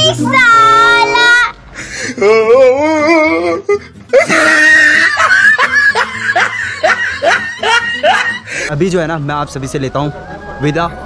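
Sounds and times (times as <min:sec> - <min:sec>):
music: 0:00.0 - 0:11.0
children laughing: 0:04.1 - 0:08.6.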